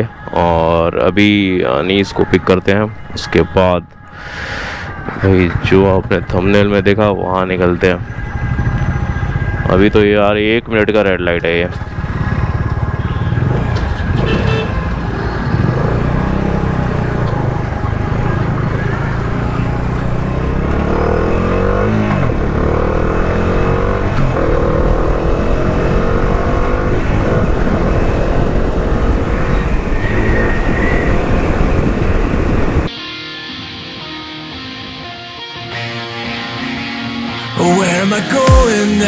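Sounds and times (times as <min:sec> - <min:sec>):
motorcycle engine accelerating: 0:08.0 - 0:10.0, 0:11.7 - 0:32.9.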